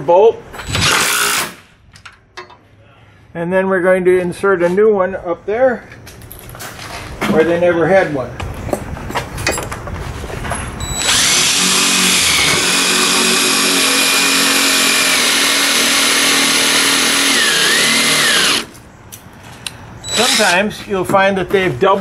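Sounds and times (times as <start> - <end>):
cordless drill whining: 10.8 - 18.7, 20.1 - 20.6.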